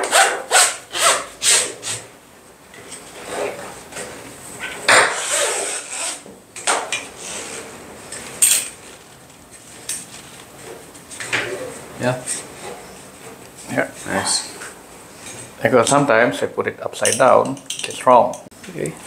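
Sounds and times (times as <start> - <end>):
metal hardware knocks: 17.0 - 18.5.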